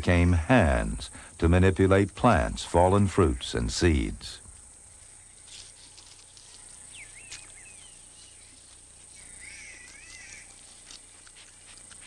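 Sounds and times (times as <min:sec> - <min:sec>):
high insect drone: 0:00.0 - 0:12.0
faint rustles in leaf litter: 0:04.5 - 0:12.0
warbling bird calls: 0:06.4 - 0:11.1.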